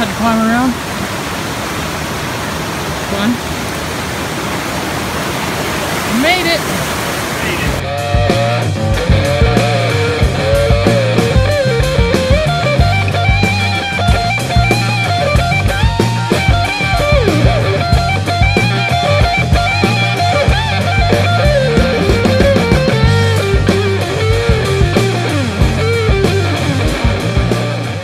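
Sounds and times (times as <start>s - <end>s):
drum kit beat: 7.5s - 28.0s
electric guitar melody: 7.8s - 28.0s.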